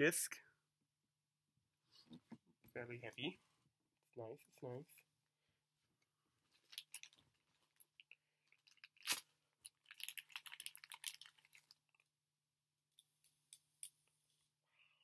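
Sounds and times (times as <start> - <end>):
plastic packaging crinkling: 8.6 - 11.8.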